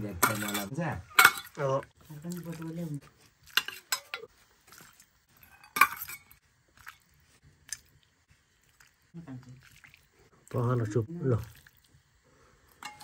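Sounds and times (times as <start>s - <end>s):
ladle clinking against steel bowls: 0.2s - 1.6s, 3.5s - 4.3s, 5.5s - 6.4s, 12.8s - 13.0s.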